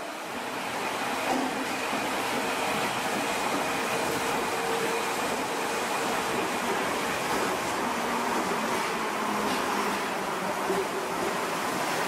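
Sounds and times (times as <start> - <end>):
subway train braking to a stop: 0.0 - 12.0.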